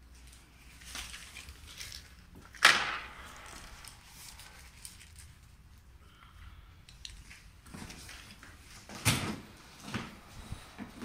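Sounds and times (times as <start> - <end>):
faint handling noises: 0.1 - 5.9.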